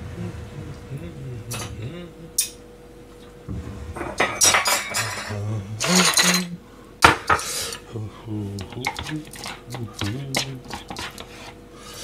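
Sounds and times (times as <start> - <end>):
ceramic plates clinking on counter: 4.0 - 7.5.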